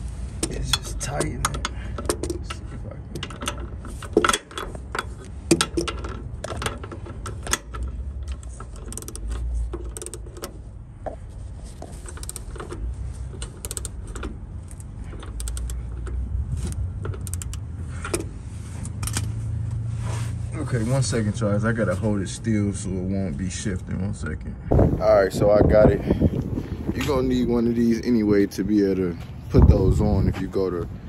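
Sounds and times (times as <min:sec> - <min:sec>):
hand ratchet clicking: 0:03.2 - 0:10.5, 0:12.0 - 0:18.3.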